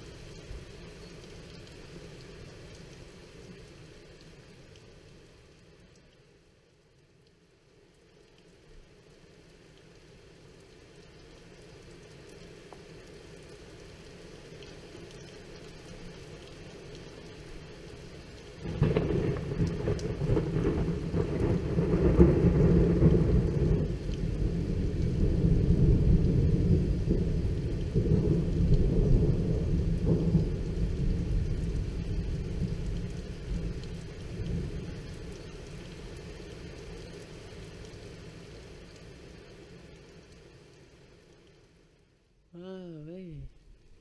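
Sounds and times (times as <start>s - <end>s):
rain falling: 0.0s - 44.0s
thunder rumbling: 18.6s - 35.3s.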